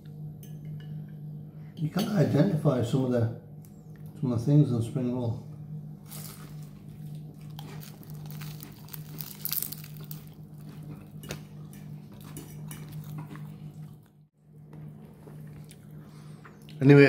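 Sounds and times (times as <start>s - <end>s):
steady low hum: 0.0s - 17.0s
fork scraping and clicking on plate: 11.2s - 13.4s.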